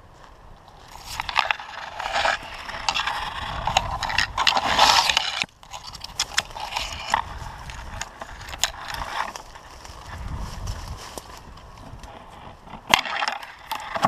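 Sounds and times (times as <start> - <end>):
branches scraping past: 0.7 - 14.0
leaf litter crunching underfoot: 9.0 - 12.4.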